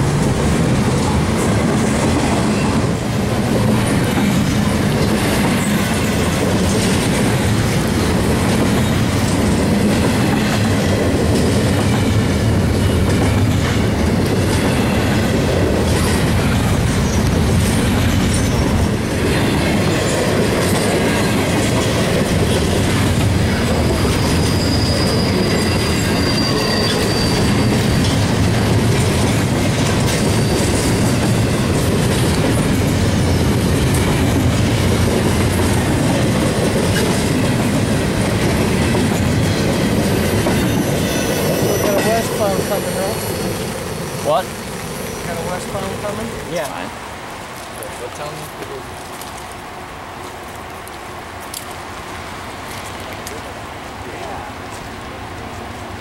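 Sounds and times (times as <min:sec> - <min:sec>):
train wheels rumbling on rail: 0:00.0 - 0:56.0
high wheel squeal: 0:23.4 - 0:28.7, 0:29.7 - 0:31.7, 0:39.0 - 0:46.1.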